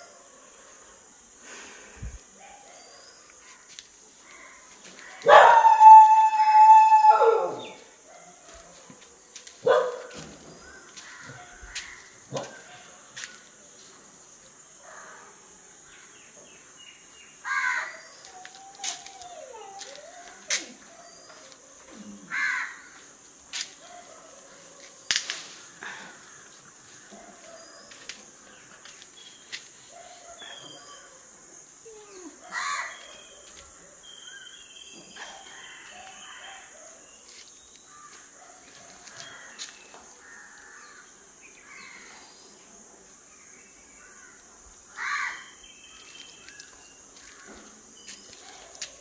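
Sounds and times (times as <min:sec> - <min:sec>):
steady high-pitched hiss: 0:00.0 - 0:49.0
dog barking: 0:05.2 - 0:06.0, 0:09.6 - 0:10.2, 0:12.3 - 0:12.9, 0:23.8 - 0:24.7
dog howling: 0:05.2 - 0:07.8, 0:18.3 - 0:21.2, 0:31.8 - 0:33.0
crow cawing: 0:10.7 - 0:12.1, 0:17.5 - 0:18.0, 0:22.3 - 0:22.9, 0:45.0 - 0:45.5.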